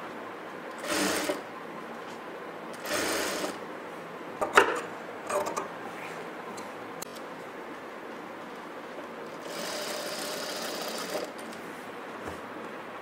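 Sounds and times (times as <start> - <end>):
sewing machine motor humming: 0.7 - 1.4, 2.7 - 3.6, 9.3 - 11.6.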